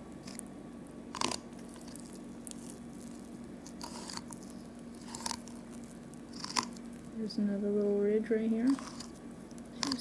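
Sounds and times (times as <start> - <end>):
knife scraping bones: 1.2 - 2.7, 3.6 - 5.6, 6.3 - 6.8, 8.7 - 10.0.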